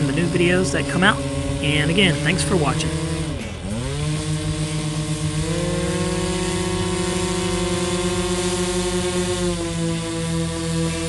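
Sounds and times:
model plane engines running: 0.0 - 11.0.

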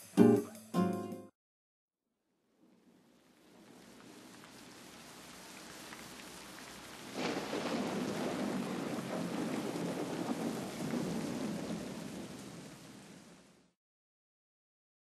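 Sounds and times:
steady rain: 2.6 - 13.8
deep thunder rumble: 7.0 - 13.2.

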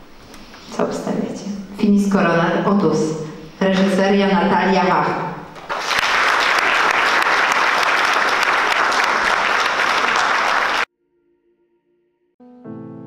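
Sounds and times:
audience applauding: 5.6 - 10.9
music with sustained notes: 10.9 - 13.0.

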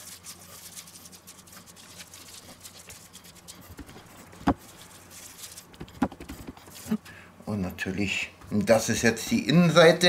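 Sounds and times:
paper rustling: 0.0 - 7.0
spice grains pattering on board: 0.0 - 7.0.

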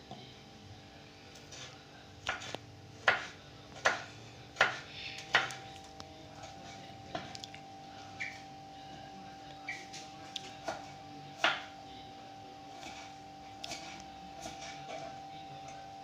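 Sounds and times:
knife chopping on wooden board: 2.3 - 5.6, 10.6 - 11.7.

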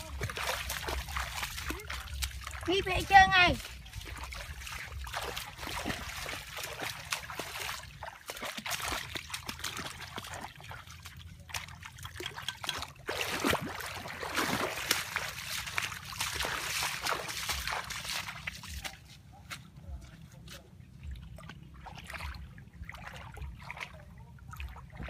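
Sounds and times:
water trickling: 0.0 - 18.9
short water splashes: 0.0 - 19.7, 20.5 - 25.0
feet wading through water: 0.0 - 25.0.

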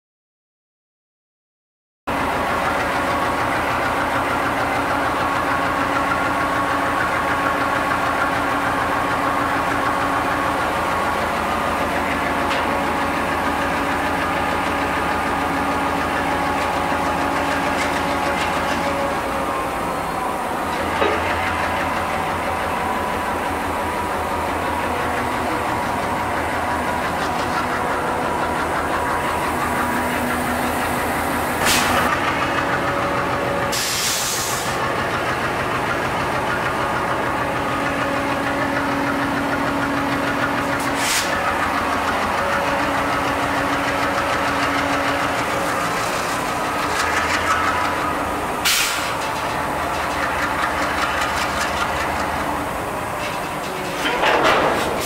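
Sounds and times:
diesel locomotive engine chugging: 2.1 - 55.0
air hiss: 33.7 - 34.8.

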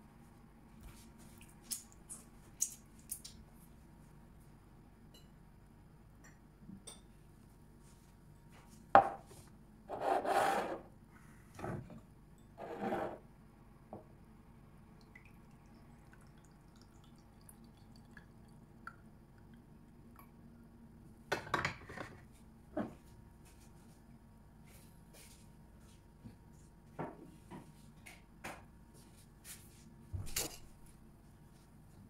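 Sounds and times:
short rubbing scrapes: 9.9 - 10.8.

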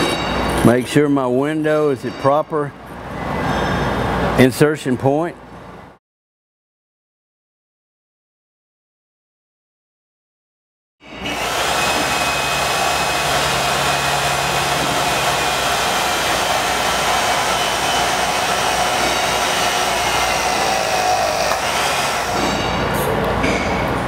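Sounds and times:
hydraulic pump running: 11.0 - 23.6.

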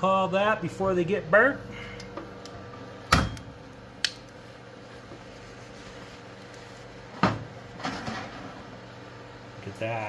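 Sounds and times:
oven humming: 0.0 - 10.0.

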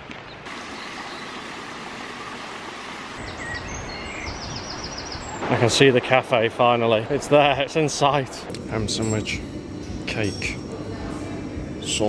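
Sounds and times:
birds chirping: 0.1 - 5.8.

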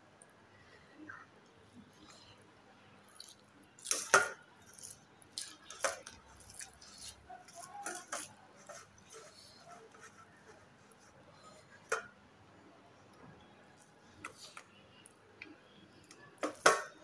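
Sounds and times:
chewing: 3.0 - 9.5.

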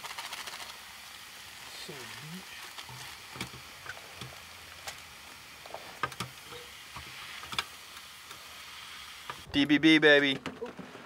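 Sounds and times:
food sizzling in a skillet: 0.0 - 9.5
utensil scraping a pan: 5.7 - 7.7.

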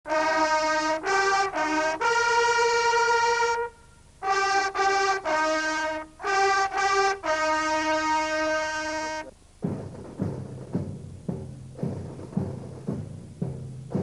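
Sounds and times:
trumpet fanfare: 0.1 - 9.3.

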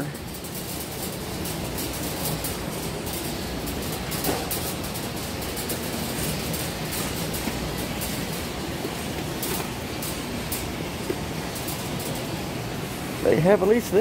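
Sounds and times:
shopping cart rattling: 0.0 - 14.0.

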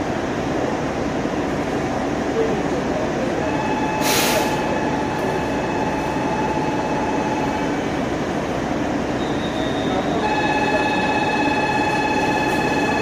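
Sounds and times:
diesel engine rumble: 0.0 - 13.0
air hiss: 4.0 - 4.6.

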